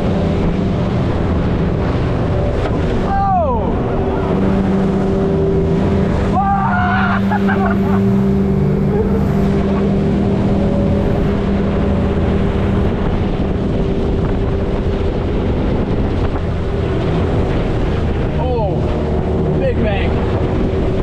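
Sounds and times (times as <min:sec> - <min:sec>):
outboard motor droning: 0:00.0 - 0:21.0
water rushing along hull: 0:00.0 - 0:21.0
wind on microphone: 0:00.0 - 0:21.0.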